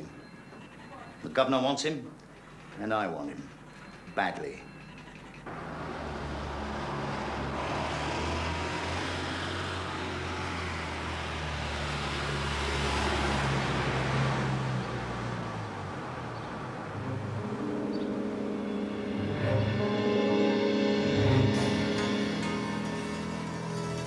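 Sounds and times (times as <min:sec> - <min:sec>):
van passing by: 0:02.3 - 0:24.0
music: 0:17.0 - 0:24.0.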